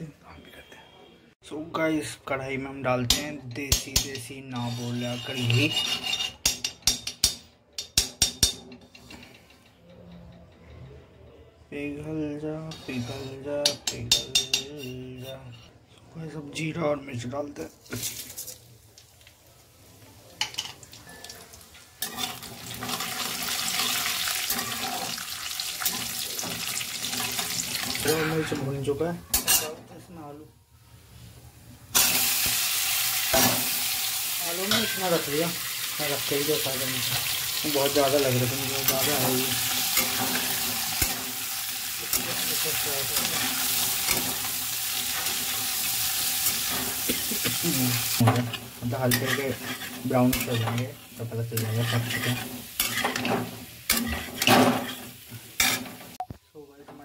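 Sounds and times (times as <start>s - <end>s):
spatula tapping metal: 3.0s - 4.8s, 5.4s - 10.2s, 13.6s - 15.0s
metal spatula scraping a pan: 3.1s - 7.4s, 12.6s - 15.8s, 20.4s - 30.0s, 32.0s - 56.2s
spices sizzling in hot oil: 17.7s - 28.6s, 31.9s - 56.2s.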